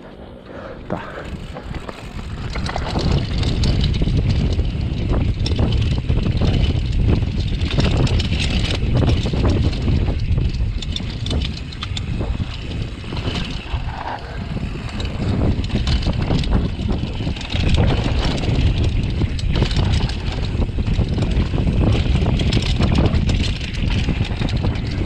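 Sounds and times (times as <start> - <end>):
wind buffeting microphone: 0.0 - 25.0
bike rattling over bumps: 0.1 - 25.0
tyres scrubbing over loose dirt: 11.0 - 25.0.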